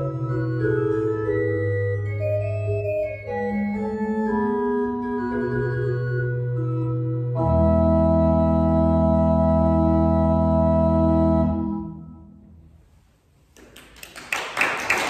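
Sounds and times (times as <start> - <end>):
pipe organ chord: 0.0 - 12.7
audience applause: 13.6 - 15.0.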